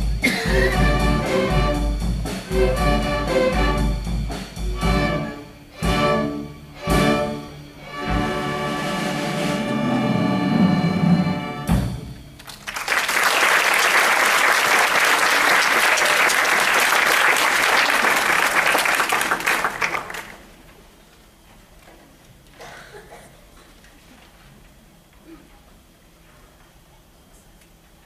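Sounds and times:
string orchestra chord: 0.0s - 12.2s
audience applauding: 12.4s - 20.7s.

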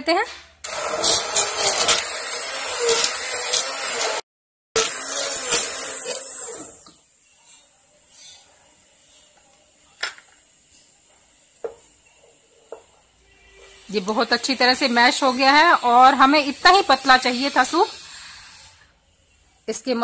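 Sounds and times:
hand blender running in soup: 0.7s - 4.2s, 4.8s - 6.9s, 14.4s - 18.7s.

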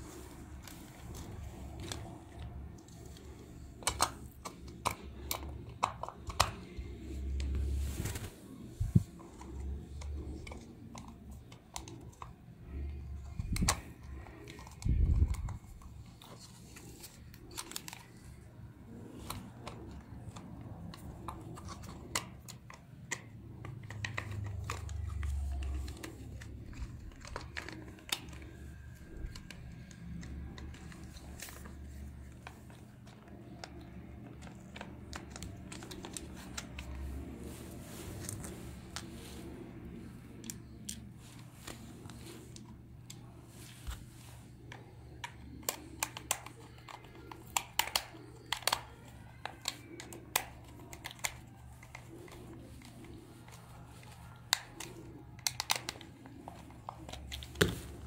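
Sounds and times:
plastic toy parts clicking: 0.6s - 7.0s, 9.2s - 18.3s, 19.2s - 37.0s, 44.7s - 57.7s.

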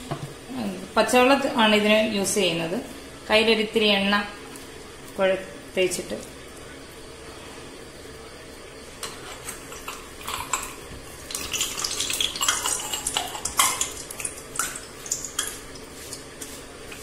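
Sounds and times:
metal utensils clinking: 9.0s - 15.6s.

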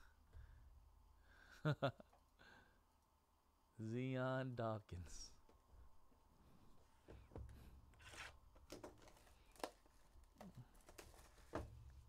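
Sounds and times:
wrapping rustling: 8.0s - 12.0s.

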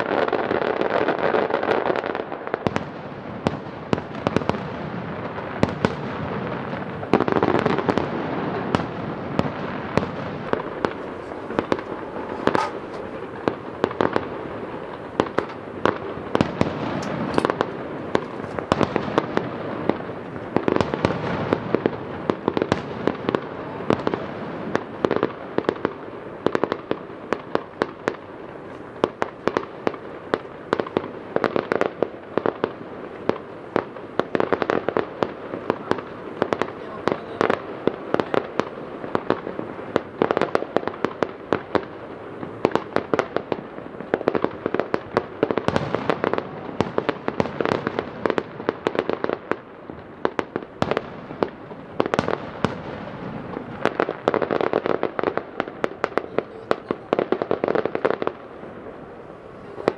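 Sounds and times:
fireworks crackle: 0.0s - 59.9s
firework shell bursts: 9.4s - 19.3s.

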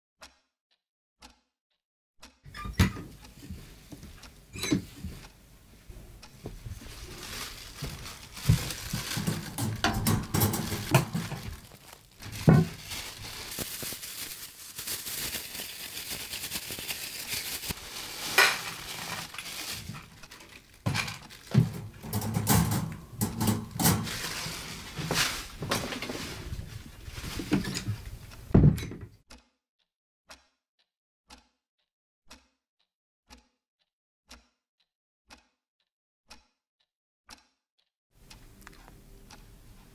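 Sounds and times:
clock ticking: 1.2s - 1.4s, 2.2s - 6.6s, 29.3s - 29.5s, 30.3s - 30.6s, 31.3s - 31.6s, 32.3s - 32.6s, 33.3s - 33.6s, 34.3s - 34.6s, 35.3s - 35.6s, 36.3s - 36.6s, 37.3s - 37.6s, 38.2s - 39.9s
plastic bag crinkling: 6.5s - 28.3s
bowl and wire cage rattling: 6.9s - 13.3s, 17.3s - 28.2s.

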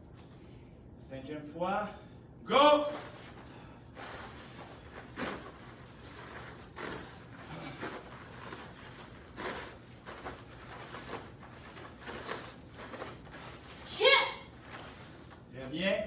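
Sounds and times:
faint low hum: 0.0s - 16.0s
uniforms swishing: 2.8s - 15.5s.

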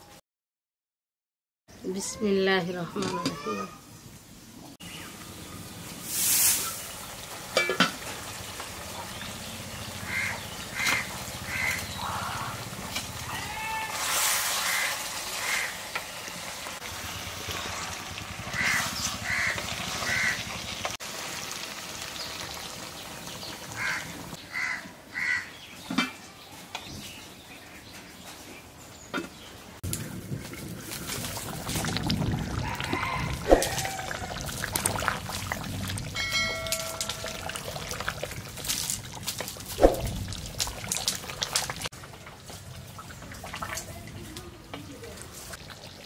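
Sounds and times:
bird calling: 8.9s - 12.7s.

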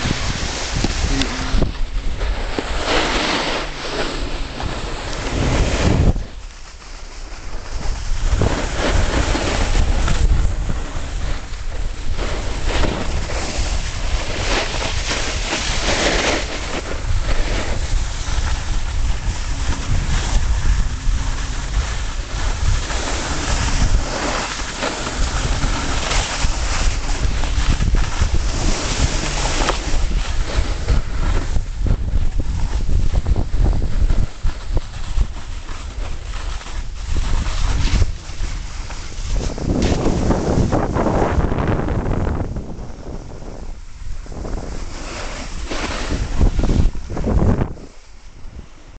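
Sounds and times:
snowboard scraping over snow: 0.0s - 48.9s
wind buffeting microphone: 0.0s - 48.9s.

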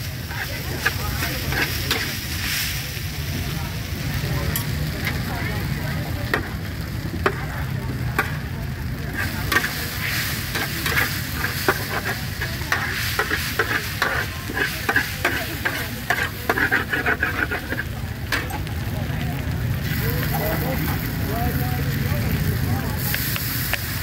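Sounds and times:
food sizzling in a pan: 0.0s - 24.0s
metal spatula scraping and tapping: 0.3s - 2.2s, 9.2s - 9.8s, 10.5s - 18.6s.

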